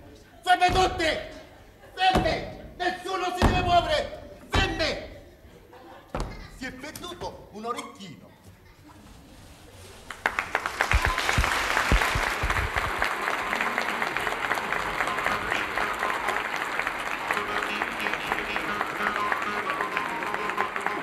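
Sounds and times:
audience applauding: 10.1 - 21.0
faint music: 11.1 - 21.0.

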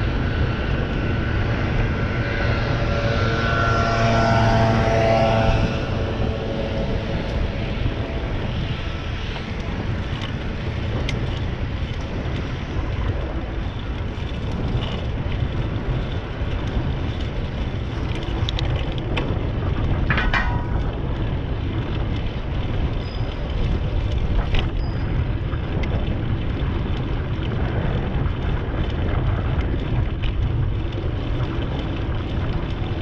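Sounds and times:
bicycle tyre noise on asphalt: 0.0 - 33.0
wind buffeting microphone: 0.0 - 33.0
brief clatter: 20.0 - 21.2.

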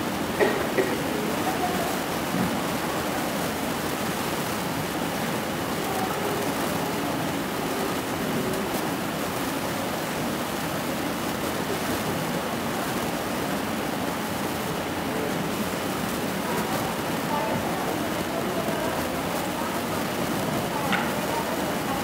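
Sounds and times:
faint voices: 0.0 - 22.0.

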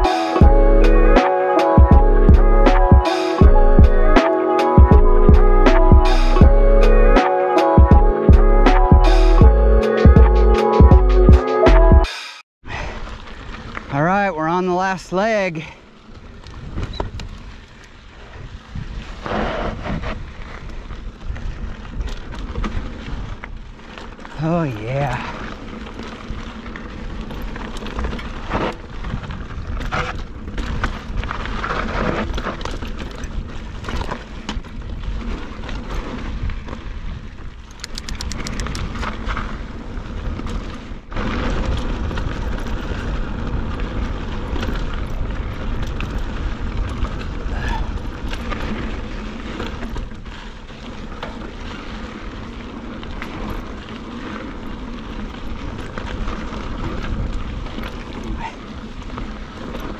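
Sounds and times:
bike rattling over rocks: 12.8 - 59.9
tyres crunching on gravel: 12.8 - 59.9
wind rumbling on microphone: 15.7 - 59.9
rapid clicking: 37.7 - 38.9.

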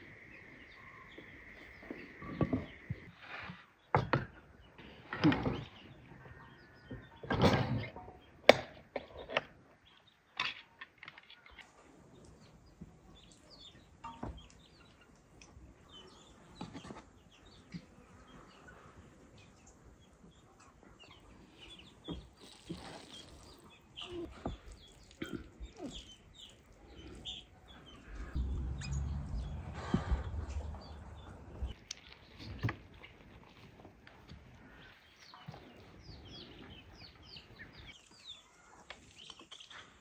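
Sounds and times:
birds chirping: 0.0 - 8.4, 11.2 - 33.2
low rumbling: 28.0 - 31.8.

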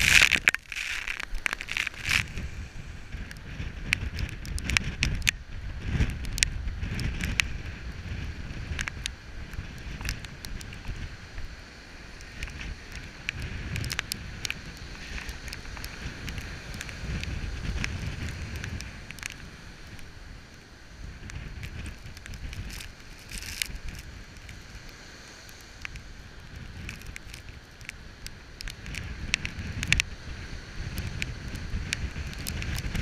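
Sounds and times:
surf breaking on rocks: 0.0 - 5.2
wind on microphone: 0.0 - 33.0.

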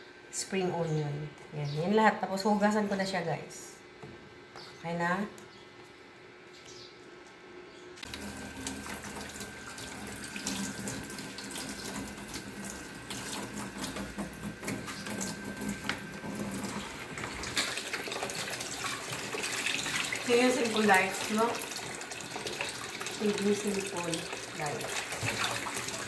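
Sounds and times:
tap running into basin: 8.0 - 26.0
water splashing from rinsing greens: 8.0 - 26.0.

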